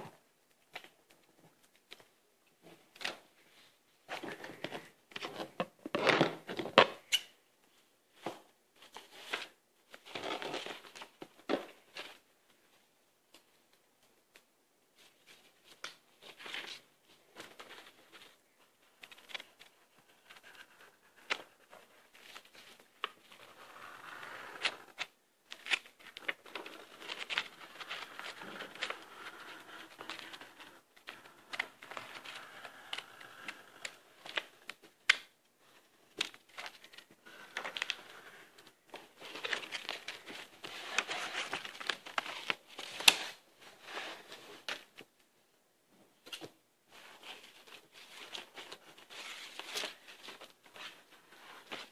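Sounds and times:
paper rustling: 15.0 - 45.1, 46.2 - 51.9.

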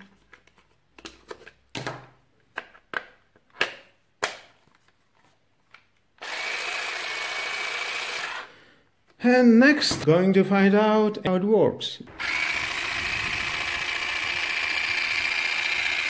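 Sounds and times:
hedge trimmer motor whirring: 6.2 - 8.5, 12.1 - 16.0.

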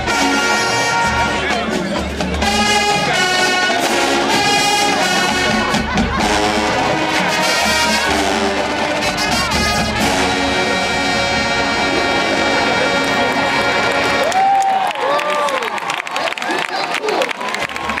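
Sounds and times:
brass section playing chords: 0.0 - 14.4
drum line: 0.0 - 15.7.

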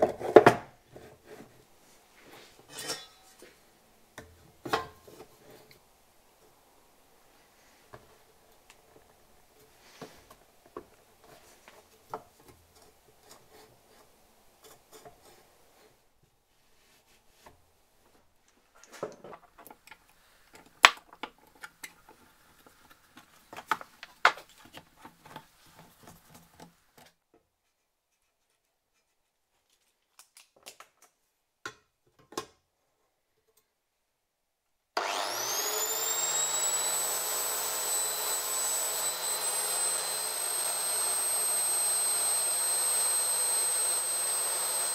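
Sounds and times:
angle grinder whining: 35.0 - 44.9.

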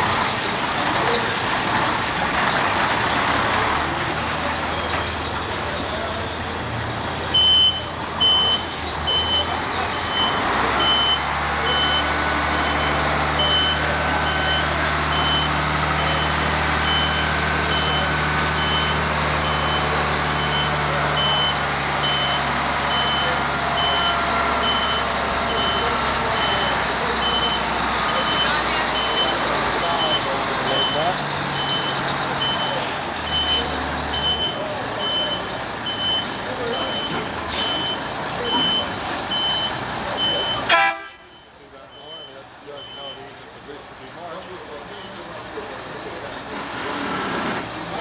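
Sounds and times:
diesel engine running: 0.0 - 48.0
reversing alarm beeps: 7.3 - 40.7, 41.3 - 43.3.

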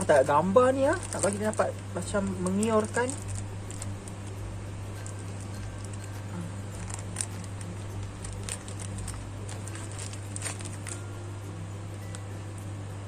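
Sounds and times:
steady low hum: 0.0 - 13.0
paper wrapper rustling and crinkling: 0.1 - 11.1.

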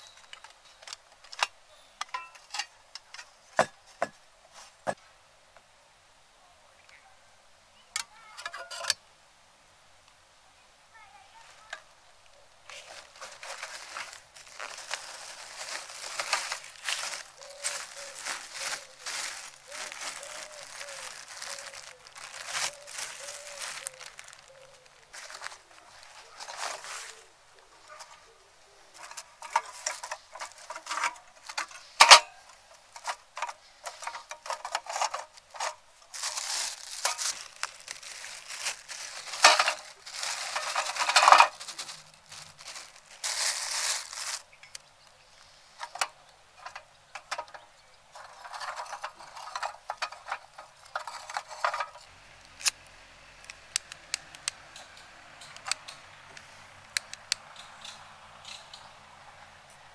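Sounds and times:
rustling: 0.0 - 5.0, 11.2 - 52.9
clicks of small hard objects: 12.7 - 27.1, 29.0 - 44.9, 45.8 - 58.6.

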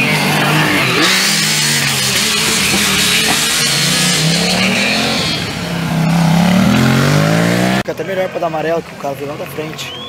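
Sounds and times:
race car engine passing: 0.0 - 7.8.

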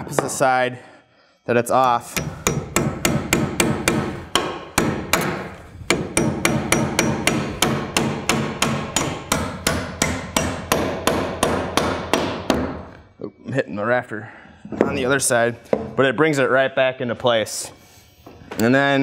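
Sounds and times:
hammer striking nail into wood: 2.1 - 12.9.

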